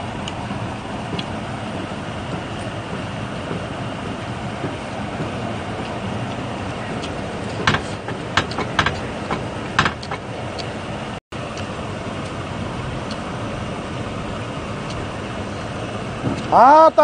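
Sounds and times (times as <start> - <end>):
steady rushing noise: 0.0 - 17.0.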